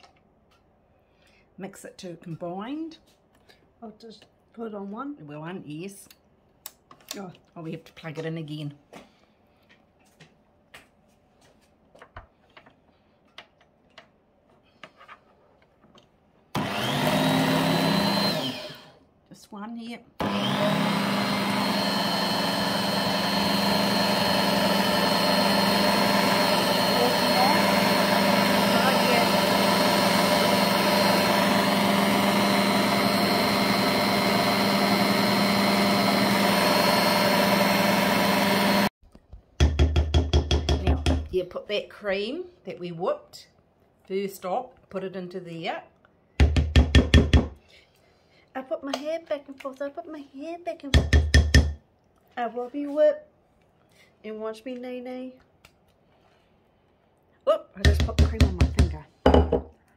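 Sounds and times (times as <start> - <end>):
electric hand mixer motor whine: 16.6 - 19.0, 20.2 - 38.9.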